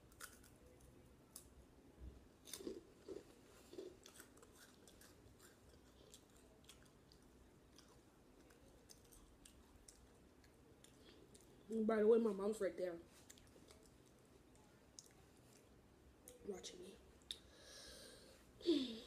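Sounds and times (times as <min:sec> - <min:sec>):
chewing and crunching snacks: 0:00.0 - 0:01.6, 0:02.4 - 0:11.8, 0:13.1 - 0:16.5.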